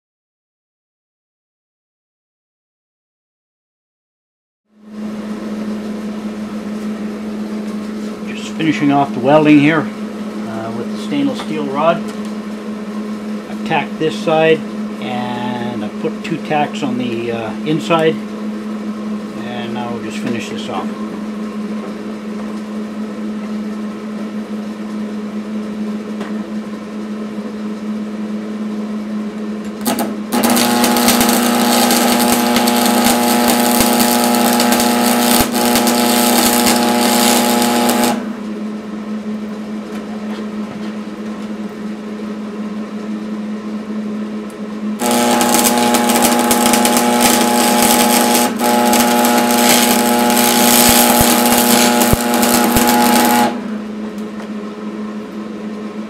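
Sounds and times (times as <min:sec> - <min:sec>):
steady hum: 0:04.8 - 0:56.0
welding arc crackling and hissing: 0:29.8 - 0:38.4, 0:45.0 - 0:53.8.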